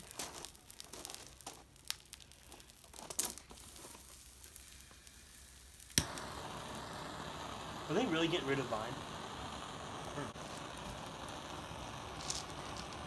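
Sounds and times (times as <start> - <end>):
fire crackling and sizzling: 0.0 - 13.0.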